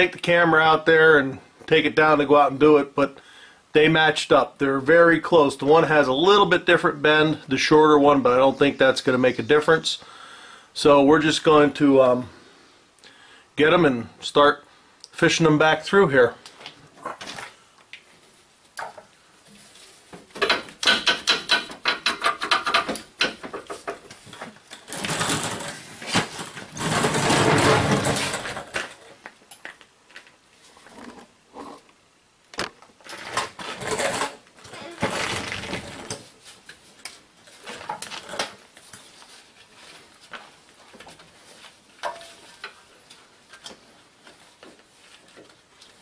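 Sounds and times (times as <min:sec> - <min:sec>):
metal lines scraping against frame: 0:19.5 - 0:29.1, 0:33.0 - 0:35.2.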